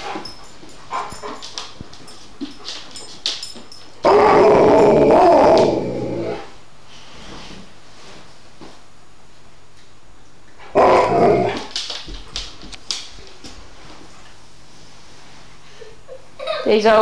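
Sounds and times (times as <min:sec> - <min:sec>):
dog howling: 0:04.0 - 0:06.5, 0:10.7 - 0:11.7.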